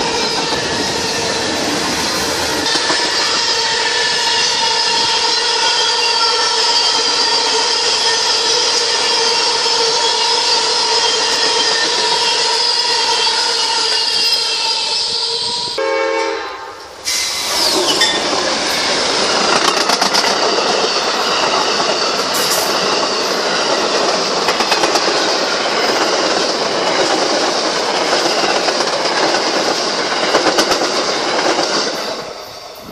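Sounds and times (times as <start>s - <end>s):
train wheels rushing on rail: 0.0s - 15.8s, 16.7s - 32.9s
train horn: 2.6s - 17.0s
wheels clicking over rail joints: 17.7s - 32.2s.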